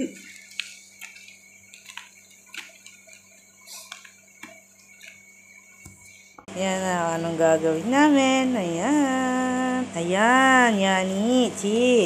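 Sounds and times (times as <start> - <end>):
cabbage leaves crackling: 0.0 - 5.3
steady low hum: 0.0 - 12.0.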